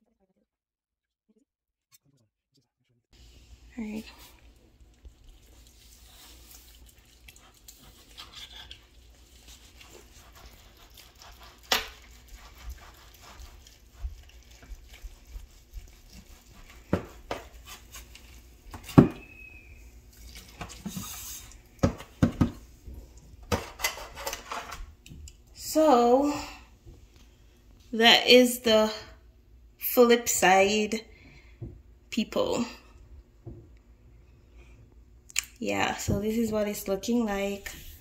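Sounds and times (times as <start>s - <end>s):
knife scraping metal pan: 8.1s - 8.9s, 23.6s - 24.8s.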